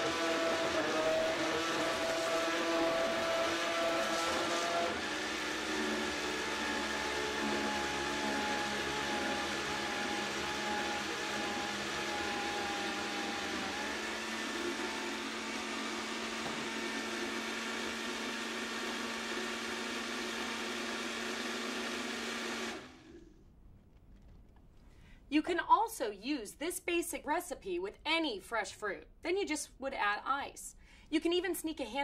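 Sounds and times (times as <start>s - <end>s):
blender motor running at high speed: 0.0s - 23.2s.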